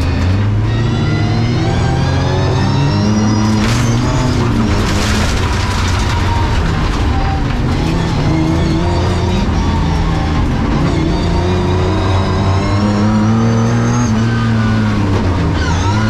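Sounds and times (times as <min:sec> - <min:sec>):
race car engine revving: 0:00.0 - 0:16.0
tyres on loose stones: 0:03.6 - 0:08.5.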